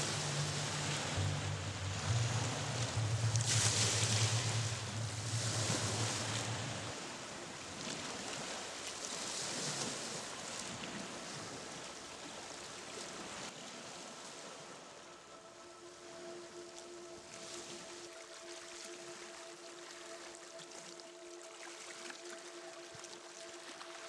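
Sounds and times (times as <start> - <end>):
low steady hum: 0.0 - 8.4, 13.9 - 24.0
sea waves breaking on rocks: 0.0 - 14.7.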